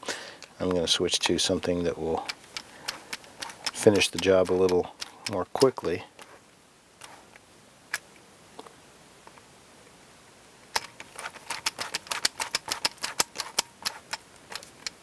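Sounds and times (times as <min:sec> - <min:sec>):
ratcheting screwdriver clicking: 0:01.6 - 0:05.8, 0:10.7 - 0:15.0.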